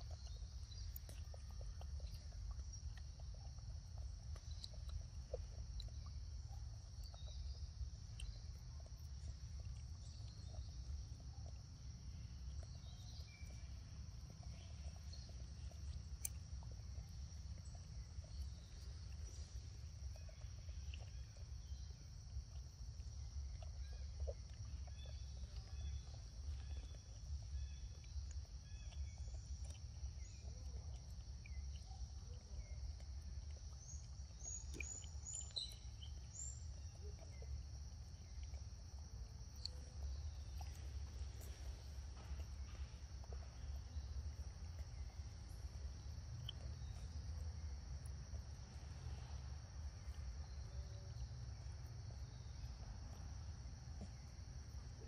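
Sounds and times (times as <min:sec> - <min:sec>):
bird chirps: 0:33.8 - 0:37.6.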